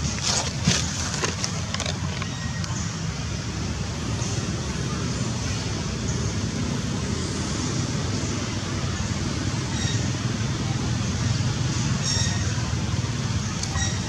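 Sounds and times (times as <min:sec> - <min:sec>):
outdoor background rumble and hiss: 0:00.0 - 0:14.0.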